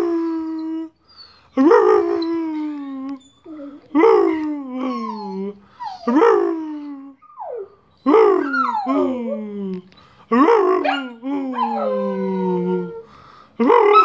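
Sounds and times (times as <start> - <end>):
small dog howling: 10.8 - 13.1.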